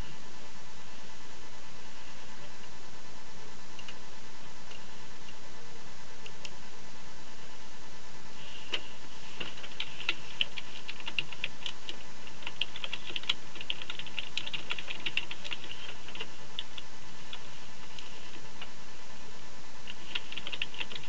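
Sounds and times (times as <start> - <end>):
background hiss: 0.0 - 21.0
typing on a keyboard: 9.5 - 16.8, 19.9 - 21.0.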